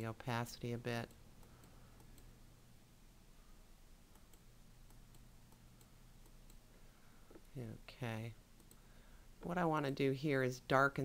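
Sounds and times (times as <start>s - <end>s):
low steady hum: 0.0s - 11.0s
computer mouse clicks: 1.0s - 2.3s, 4.1s - 6.6s, 8.6s - 8.8s.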